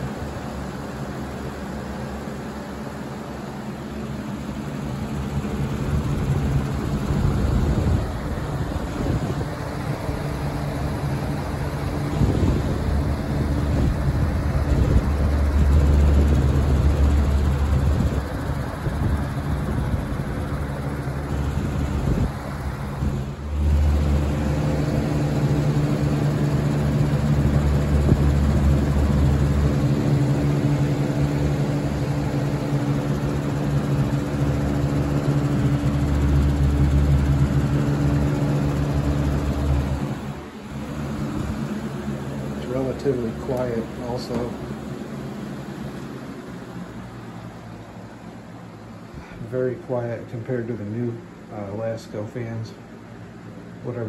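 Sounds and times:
box fan motor hum and airflow: 0:00.0 - 0:54.0
wind buffeting microphone: 0:06.0 - 0:20.7, 0:21.4 - 0:23.3.

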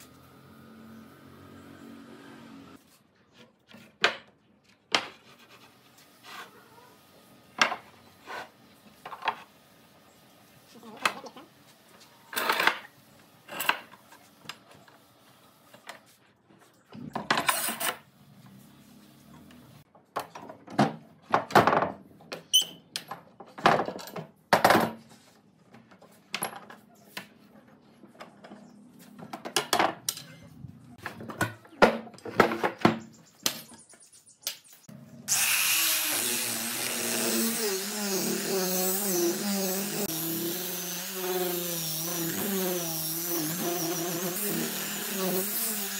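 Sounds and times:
angle grinder sanding wood: 0:35.3 - 0:45.9.

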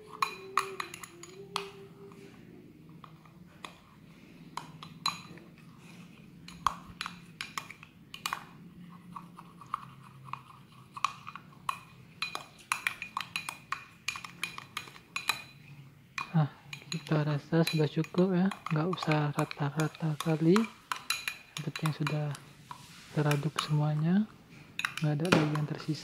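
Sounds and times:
teaspoon clinking against glass: 0:00.0 - 0:01.8, 0:16.2 - 0:22.4.

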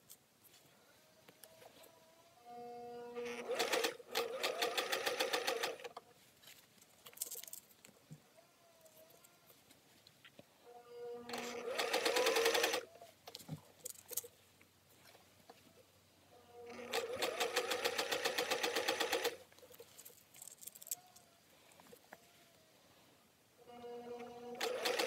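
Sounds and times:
sewing machine stitching: 0:03.2 - 0:05.9, 0:11.3 - 0:12.9, 0:16.6 - 0:19.4, 0:24.0 - 0:25.0.

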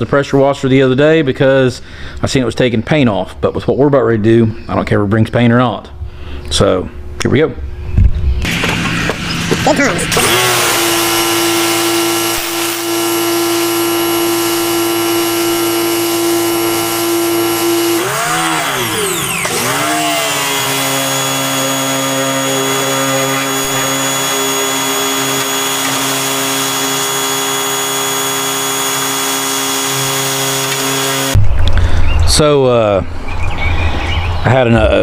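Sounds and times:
pressure washer running: 0:08.4 - 0:31.4.

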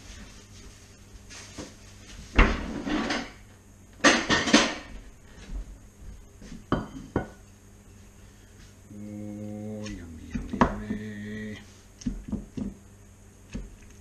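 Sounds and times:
dishes clattering: 0:04.0 - 0:05.0, 0:06.7 - 0:07.4.

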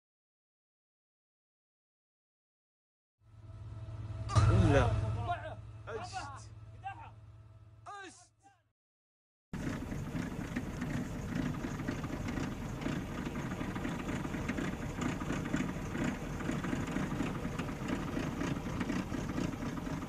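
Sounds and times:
engine rumbling: 0:09.6 - 0:20.0.

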